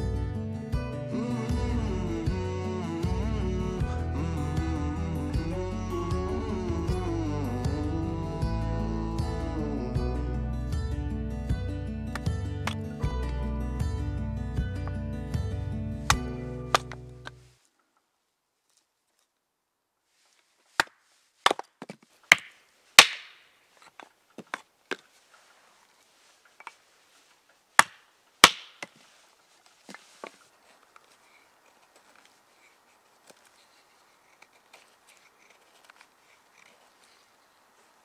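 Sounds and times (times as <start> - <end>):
hatchet chopping wood: 16.1 - 17.4, 20.8 - 23.4, 27.8 - 29.0.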